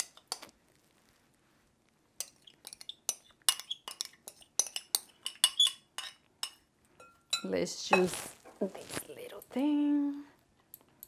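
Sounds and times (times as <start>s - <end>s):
metal spoon clinking on glass bowl: 2.2s - 8.2s.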